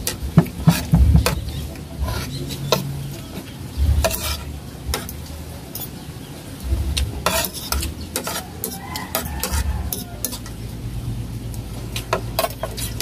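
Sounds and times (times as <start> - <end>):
dull knocks: 0.4 - 1.5
cutlery clinking on a plate: 7.2 - 10.5.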